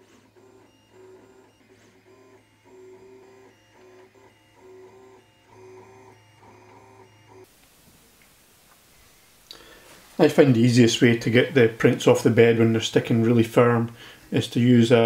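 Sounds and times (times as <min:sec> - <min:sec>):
printer low hum: 0:00.0 - 0:15.0
stepper motors whining tones: 0:00.1 - 0:07.5.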